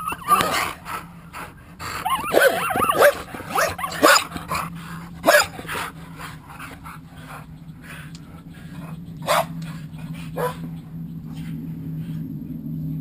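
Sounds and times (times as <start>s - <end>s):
dogs sharp barks: 0.0s - 1.1s, 2.0s - 7.4s, 9.2s - 10.7s
dogs whining yips and growls: 0.0s - 11.6s.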